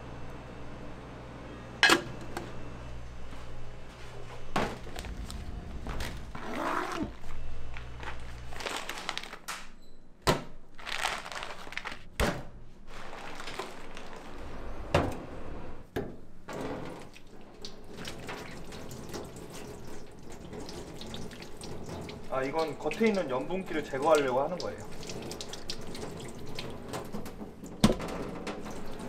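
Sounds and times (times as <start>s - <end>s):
rustling: 12.8s - 14.6s
water splashing: 17.0s - 26.9s.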